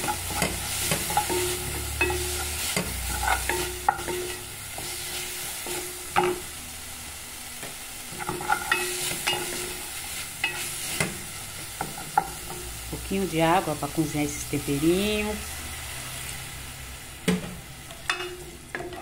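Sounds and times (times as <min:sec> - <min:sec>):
wooden spoon scraping a pot: 0:00.0 - 0:05.8
vegetables sizzling in oil: 0:00.0 - 0:19.0.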